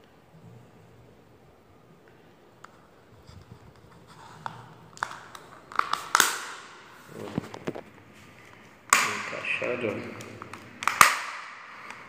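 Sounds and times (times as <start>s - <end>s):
plastic scraping and rattling: 3.2s - 8.0s
sharp plastic clicks: 10.0s - 12.0s
plastic piece snapping into place: 10.1s - 12.0s.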